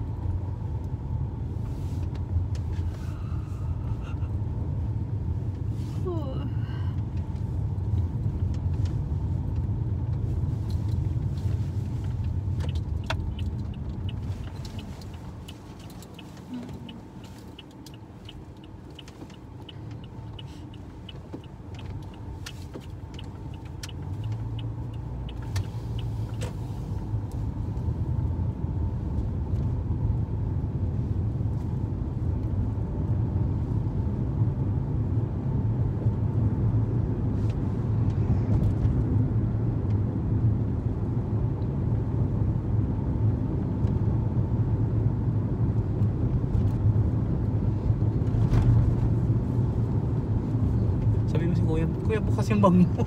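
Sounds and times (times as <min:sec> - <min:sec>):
car road noise rumble: 0:00.0 - 0:53.0
faint regular ticking: 0:12.6 - 0:26.2.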